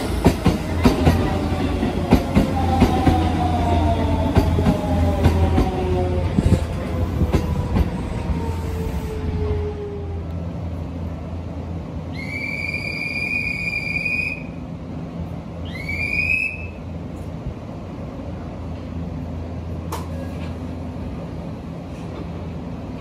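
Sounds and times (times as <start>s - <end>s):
electric train humming: 0.0s - 23.0s
whistle blasts: 12.1s - 14.6s, 15.6s - 16.9s.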